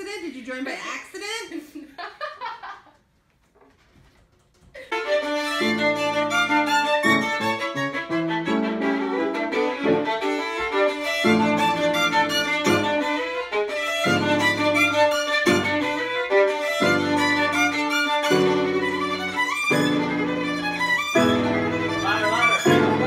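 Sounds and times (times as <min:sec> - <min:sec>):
person laughing: 0:01.7 - 0:03.0, 0:04.7 - 0:05.1
violin playing bowed melody: 0:04.8 - 0:23.0
piano accompaniment: 0:04.9 - 0:23.0.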